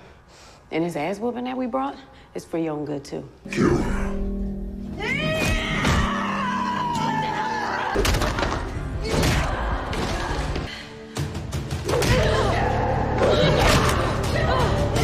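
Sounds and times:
action score music: 7.9 - 15.0.

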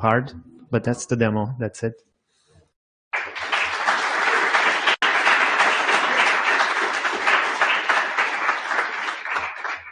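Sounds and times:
audience applauding: 3.1 - 9.9.

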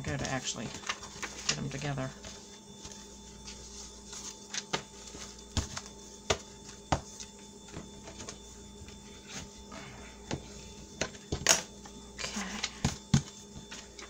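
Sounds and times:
faint steady hum: 0.0 - 14.0
paper rustling: 0.1 - 5.9.

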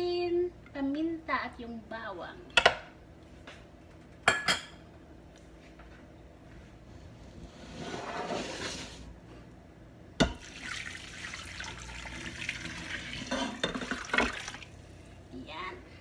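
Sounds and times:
liquid splashing into pot: 10.2 - 14.8.

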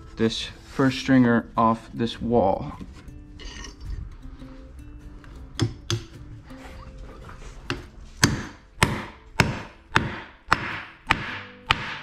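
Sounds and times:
hammer striking wood: 5.6 - 6.2, 7.7 - 12.0.

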